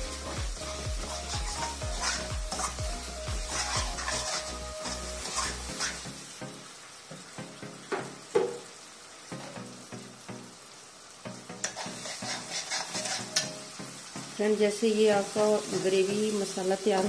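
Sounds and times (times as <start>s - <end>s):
sizzling in oil: 0.0s - 17.0s
spoon stirring and scraping pan: 0.7s - 6.2s, 11.6s - 13.7s.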